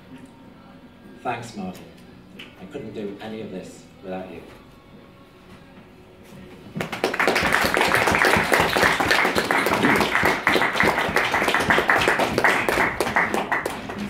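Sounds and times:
audience applauding: 0:06.8 - 0:14.0.

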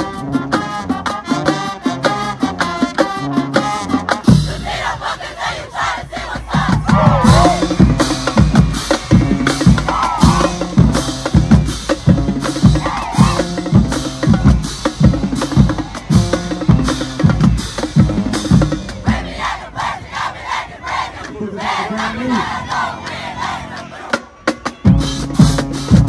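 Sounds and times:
snare and bass drums: 0:00.0 - 0:04.9, 0:06.0 - 0:20.2, 0:24.0 - 0:26.0.

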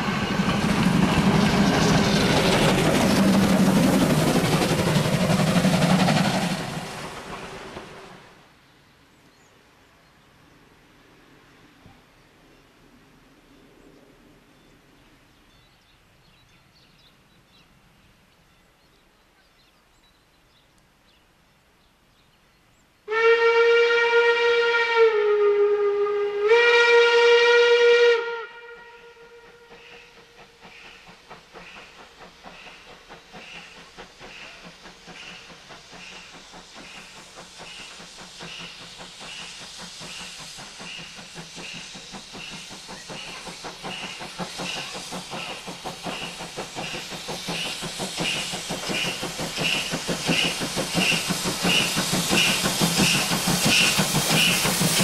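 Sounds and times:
steam locomotive exhaust beats: 0:00.0 - 0:08.4, 0:23.1 - 0:55.0
steam hiss: 0:00.0 - 0:08.5, 0:29.0 - 0:55.0
steam locomotive whistle: 0:23.1 - 0:30.3, 0:48.2 - 0:54.8.

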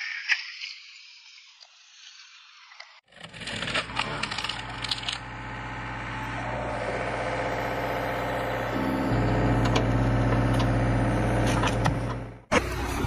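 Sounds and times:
excavator engine running: 0:03.1 - 0:13.0.

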